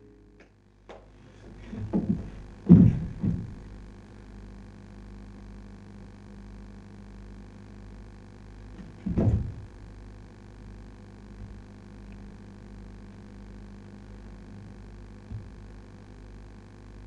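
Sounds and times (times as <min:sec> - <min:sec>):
steady low hum: 0:00.0 - 0:17.0
knocking and scuffling on floor: 0:01.4 - 0:03.7, 0:08.8 - 0:09.7
body thudding onto wooden floor: 0:01.5 - 0:03.8, 0:08.8 - 0:09.8, 0:15.3 - 0:15.7.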